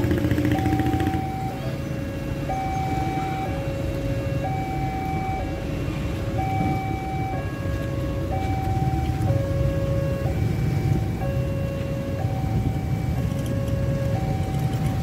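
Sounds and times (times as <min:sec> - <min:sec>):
road traffic rumble: 0:00.0 - 0:15.0
two-tone crossing alarm: 0:00.0 - 0:15.0.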